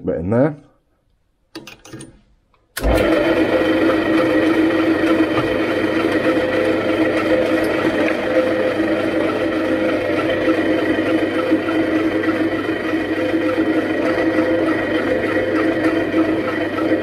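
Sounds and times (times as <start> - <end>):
drill press motor running: 2.8 - 17.0.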